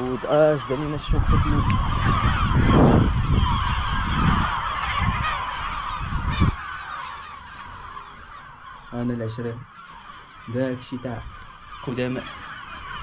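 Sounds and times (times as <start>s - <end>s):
wind rumbling on microphone: 0.0s - 6.7s
gulls calling: 0.0s - 13.0s.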